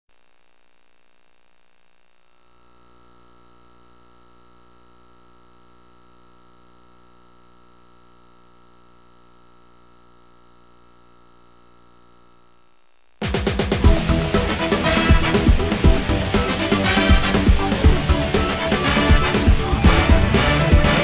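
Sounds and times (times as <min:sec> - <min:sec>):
electrical hum and hiss: 0:00.1 - 0:21.0
steady high whine: 0:13.6 - 0:21.0.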